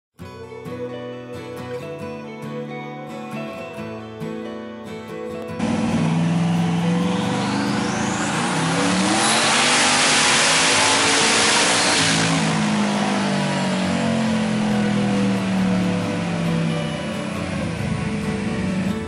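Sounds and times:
loud rushing hiss: 0:05.6 - 0:16.2
engine revving: 0:05.6 - 0:19.0
high turbo whine: 0:05.6 - 0:19.0.

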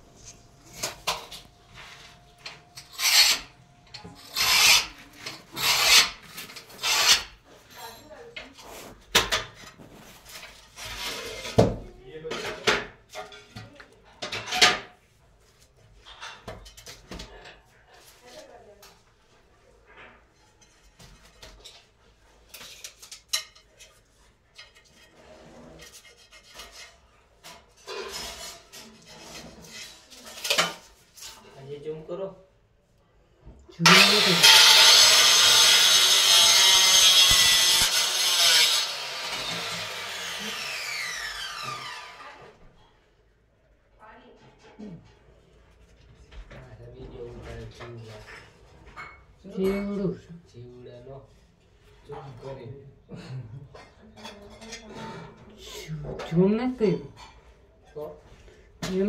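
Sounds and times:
rubbing and scraping: 0:00.0 - 0:07.7, 0:22.4 - 0:31.6, 0:33.9 - 0:40.8
rough rasping scrapes: 0:02.8 - 0:03.5, 0:04.1 - 0:07.4, 0:33.9 - 0:42.3.

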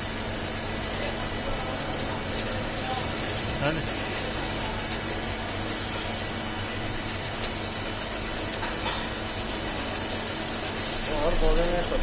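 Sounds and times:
drilling machine running: 0:00.0 - 0:12.0.

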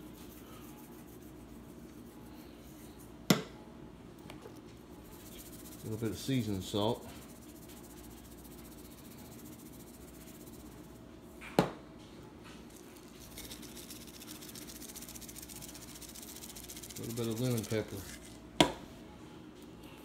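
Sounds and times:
spice container knocking on countertop: 0:03.3 - 0:03.5, 0:18.6 - 0:18.8.

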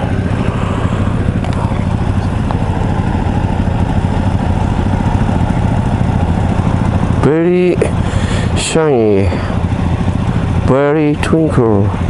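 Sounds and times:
motorcycle engine running steadily: 0:00.0 - 0:12.0.

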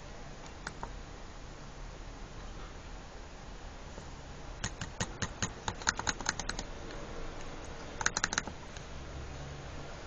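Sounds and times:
laptop keyboard typing: 0:00.6 - 0:00.9, 0:04.6 - 0:06.7, 0:07.7 - 0:08.6.

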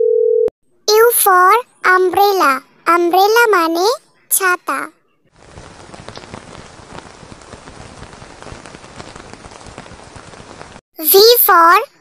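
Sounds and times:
steady rain falling: 0:05.4 - 0:10.8.

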